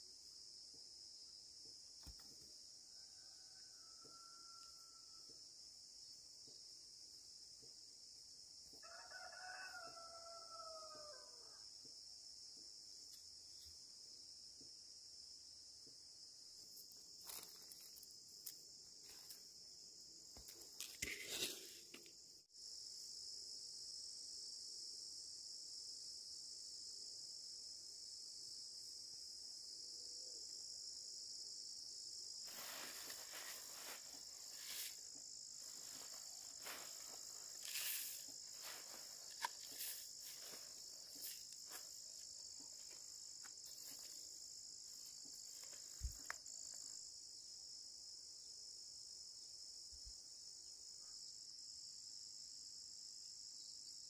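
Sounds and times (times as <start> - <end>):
insect chorus: 0.0 - 54.0
rooster crowing: 2.9 - 5.3, 8.8 - 11.6.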